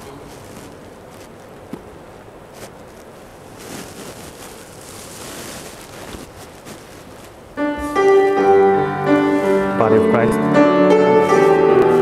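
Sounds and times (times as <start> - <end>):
faint rustles: 0.0 - 9.9, 10.9 - 12.0
soft hiss: 0.0 - 12.0
piano chord: 7.6 - 12.0.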